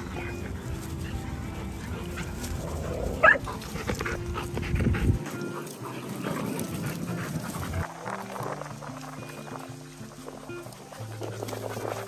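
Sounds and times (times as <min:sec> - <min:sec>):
dog barking: 0:03.2 - 0:03.6.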